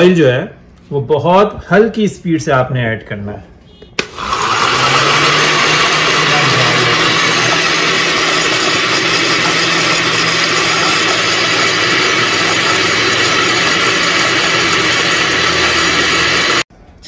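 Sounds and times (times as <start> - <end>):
blender motor running: 4.0 - 16.7.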